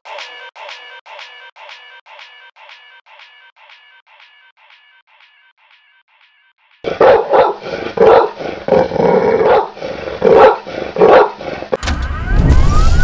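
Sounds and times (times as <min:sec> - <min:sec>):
dog barking: 0:06.9 - 0:11.5
rising whoosh: 0:12.1 - 0:13.0.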